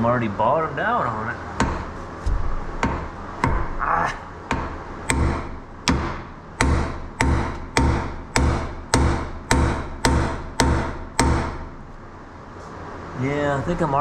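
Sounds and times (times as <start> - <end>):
hammer striking metal: 1.6 - 3.9, 4.5 - 11.7.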